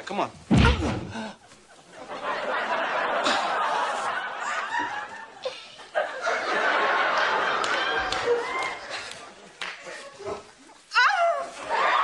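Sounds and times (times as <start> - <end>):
audience laughing: 1.4 - 10.4, 11.6 - 12.0.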